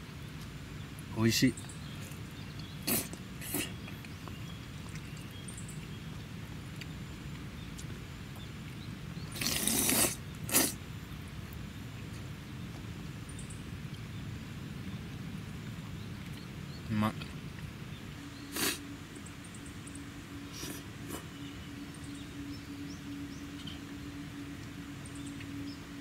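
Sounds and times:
low background noise: 0.0 - 26.0
person slurping noodles: 2.8 - 3.8, 9.4 - 10.8, 18.5 - 18.8.

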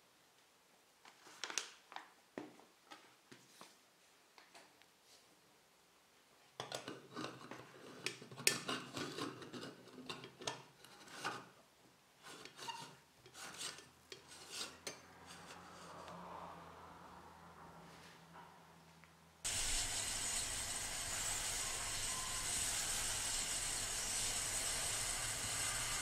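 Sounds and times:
metal threads grating and scraping: 12.2 - 16.6, 19.5 - 26.0.

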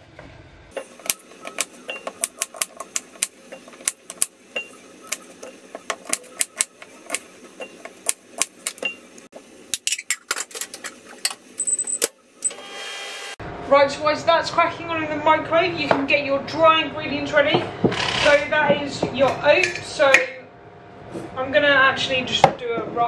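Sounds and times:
microwave beep: 1.1 - 2.2, 4.5 - 4.8.

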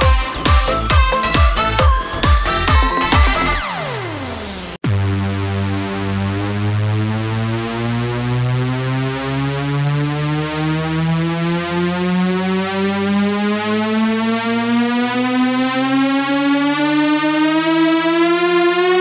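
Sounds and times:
synthesizer tone rising in pitch: 0.0 - 19.0.

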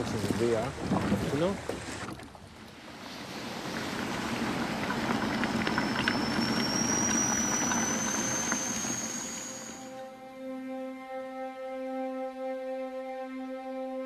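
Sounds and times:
kettle hissing and crackling: 2.9 - 10.0
kettle high whistle: 4.2 - 10.2.

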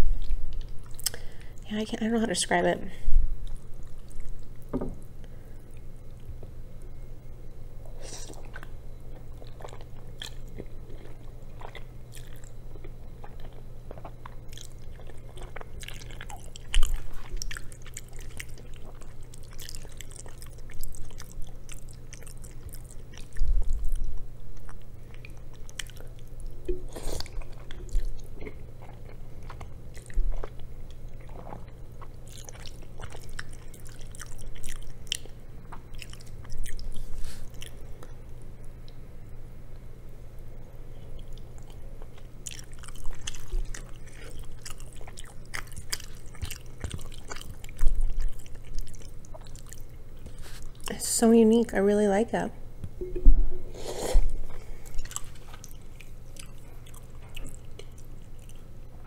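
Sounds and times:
low steady hum: 0.0 - 59.0
chewing and slurping noodles: 8.2 - 24.0, 25.1 - 38.1, 41.0 - 50.9, 53.8 - 58.7.

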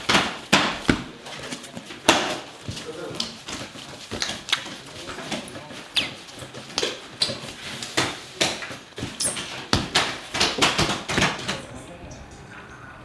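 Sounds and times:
sharp knocks and clacks: 1.8 - 11.7.

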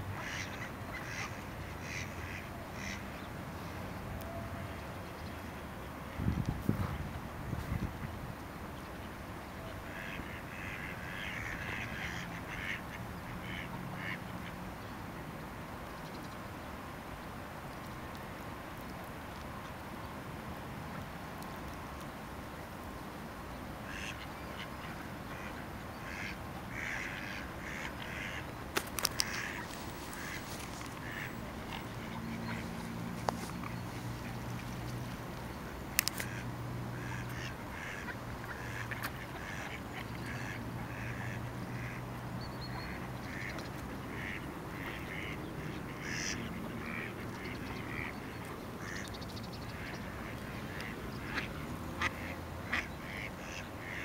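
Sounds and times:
ducks quacking: 0.2 - 3.0, 9.7 - 14.6, 23.8 - 34.6, 36.0 - 54.0.

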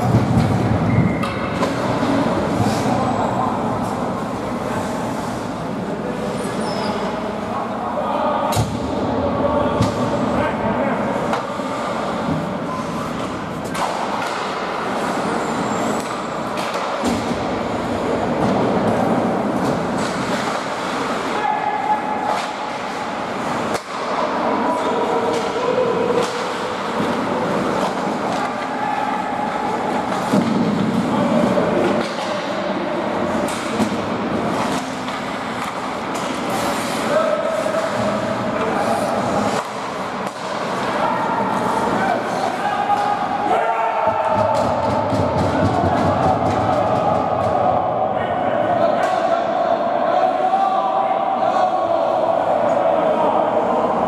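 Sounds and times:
sharp clacks of hockey sticks: 0.1 - 3.0, 13.1 - 14.8, 15.8 - 17.5, 22.2 - 24.4, 25.2 - 28.8, 31.8 - 37.1, 37.8 - 41.0
skates scraping ice: 11.1 - 43.5
skates scraping on ice: 33.2 - 42.6.

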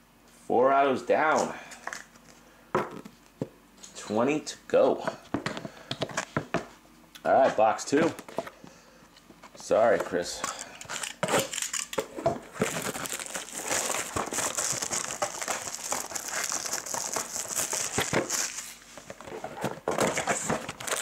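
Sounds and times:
packaging crinkling: 10.8 - 21.0.

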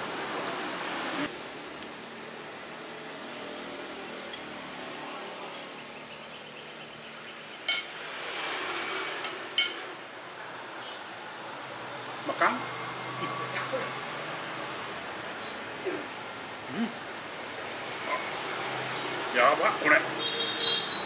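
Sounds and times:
cutlery clinking on a plate: 7.2 - 8.0, 9.2 - 9.9.

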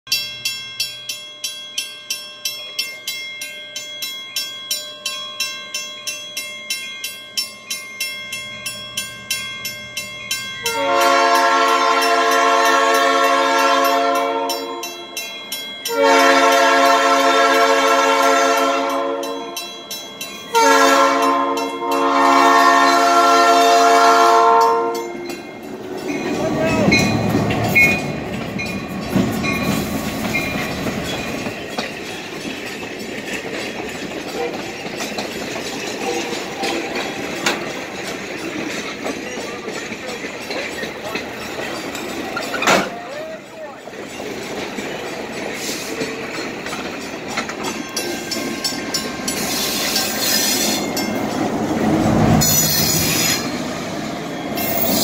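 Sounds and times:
crossing warning bell ringing: 0.1 - 55.0
locomotive air horn blasts: 10.6 - 15.0, 15.9 - 19.6, 20.5 - 25.2.

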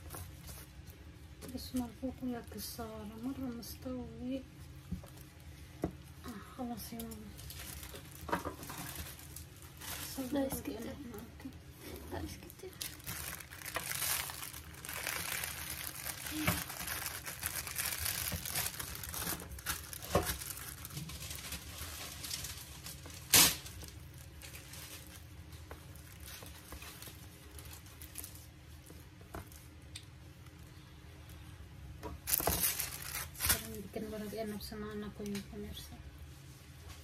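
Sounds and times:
plastic bag crinkling: 6.3 - 29.7, 32.2 - 34.0.

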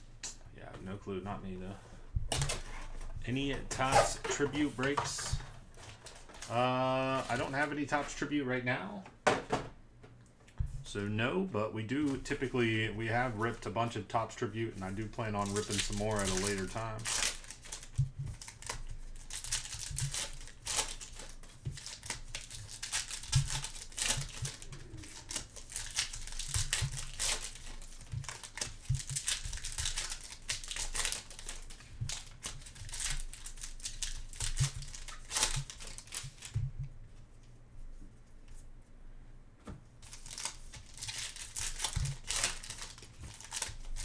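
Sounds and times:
foil wrapper crinkling and tearing: 14.9 - 36.6, 40.0 - 44.0.

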